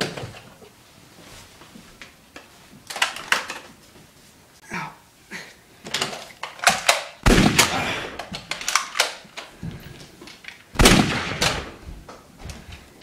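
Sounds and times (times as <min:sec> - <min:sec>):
loud shot-like bangs: 0:07.2 - 0:08.2, 0:10.8 - 0:11.8.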